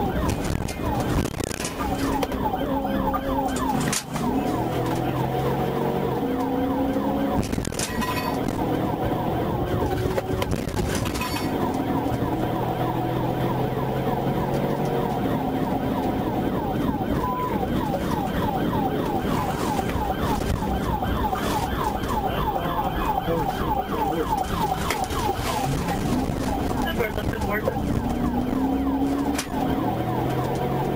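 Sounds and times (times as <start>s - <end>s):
car engine and road noise: 0.0s - 30.9s
police siren: 0.0s - 30.9s.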